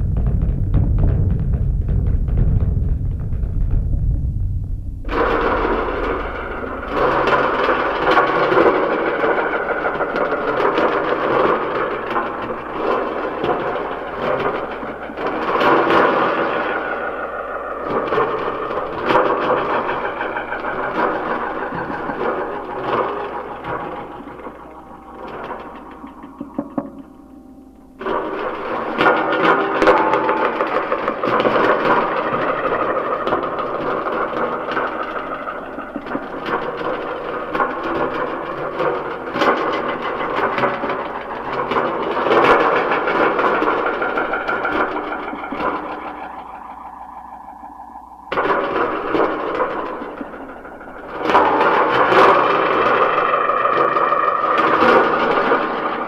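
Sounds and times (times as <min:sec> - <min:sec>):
noisy crackling sound art: 0:00.0 - 0:56.0.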